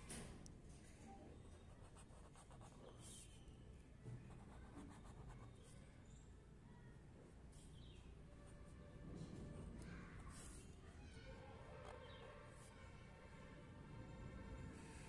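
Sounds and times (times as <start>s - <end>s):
marker pen scratching on paper: 1.6s - 3.4s, 4.2s - 5.7s, 9.6s - 10.7s.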